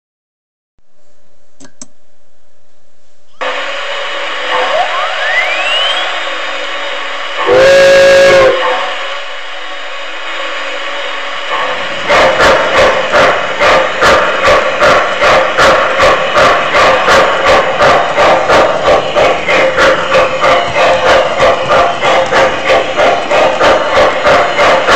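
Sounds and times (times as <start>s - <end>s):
steam whistle blast: 3.4s - 6.6s, 7.4s - 9.0s
locomotive chuffing: 3.4s - 24.9s
steam hiss: 3.4s - 24.9s
rising tone: 4.5s - 7.0s.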